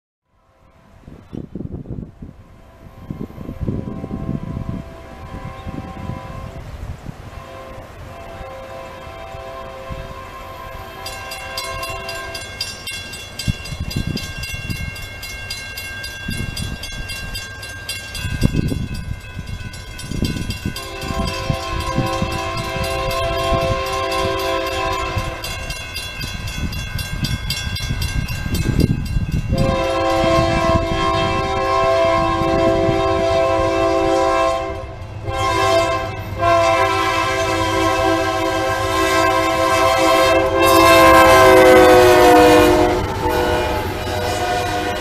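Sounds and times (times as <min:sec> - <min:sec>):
train rumble: 0:00.4 - 0:45.0
locomotive air horn: 0:02.7 - 0:12.6, 0:20.6 - 0:25.7, 0:29.5 - 0:45.0
crossing bell ringing: 0:07.8 - 0:45.0.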